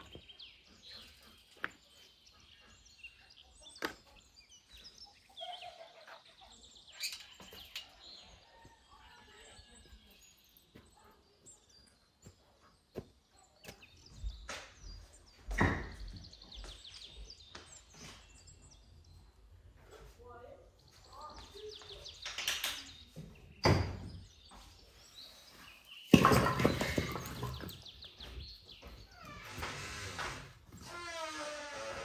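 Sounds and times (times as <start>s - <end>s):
small birds chirping: 0.0s - 31.5s.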